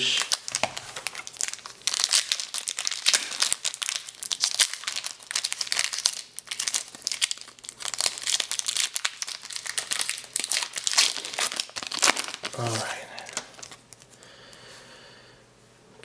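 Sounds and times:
wrappers crinkling and tearing: 0.0 - 14.2.

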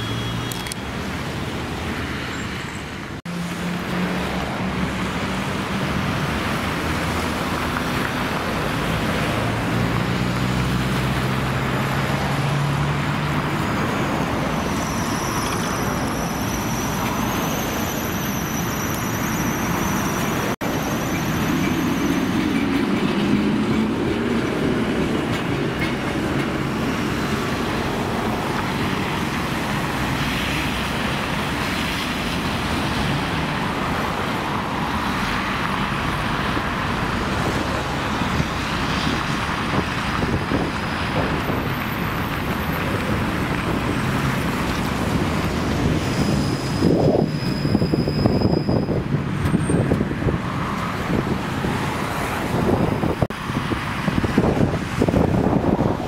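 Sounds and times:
road traffic noise: 0.0 - 56.0
wheels rumbling on rails: 0.0 - 56.0
tram motor hum: 20.2 - 30.1.

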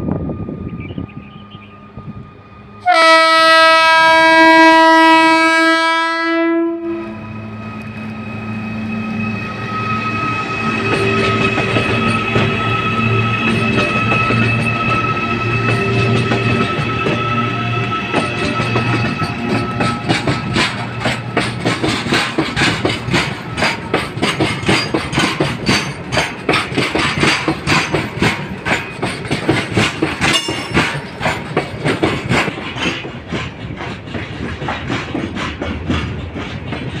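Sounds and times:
train wheels clattering over rails: 10.0 - 37.0.

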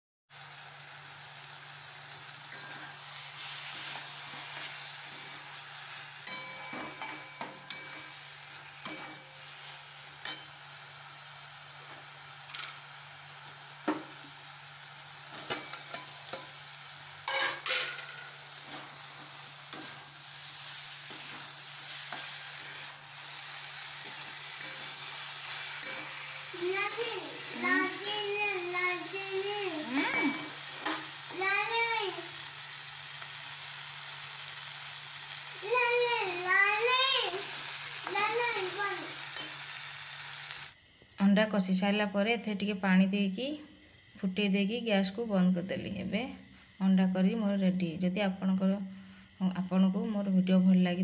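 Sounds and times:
food sizzling in a wok: 0.3 - 41.0, 41.6 - 50.4
spatula stirring and scraping: 17.2 - 28.0.

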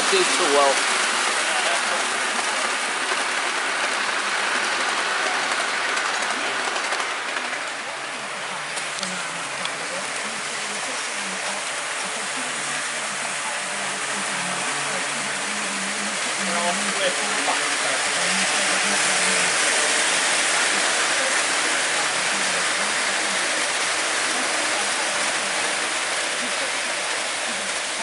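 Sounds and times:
model trains rumbling on track: 0.0 - 28.0.

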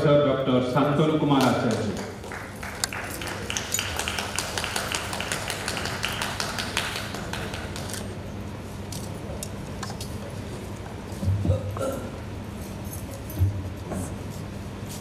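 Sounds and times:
audience clapping: 1.3 - 8.2.

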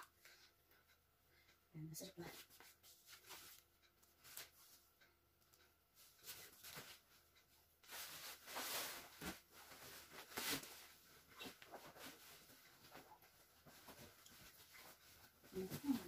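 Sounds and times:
pillowcase rustling: 7.8 - 16.0.

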